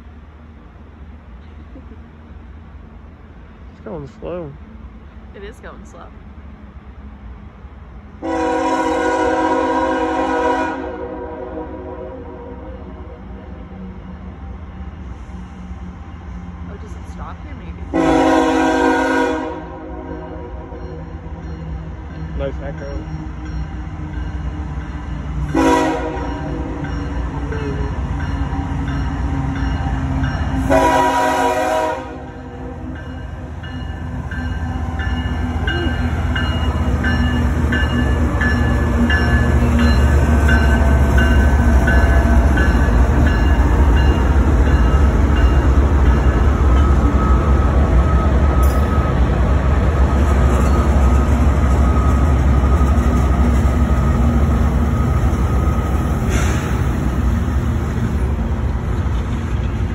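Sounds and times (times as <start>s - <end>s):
diesel engines rumbling: 0.0s - 10.2s, 20.6s - 59.9s
locomotive horn blast: 8.2s - 12.8s, 17.9s - 20.8s, 25.5s - 26.8s, 30.6s - 32.8s
wheels clattering on rails: 33.0s - 59.9s.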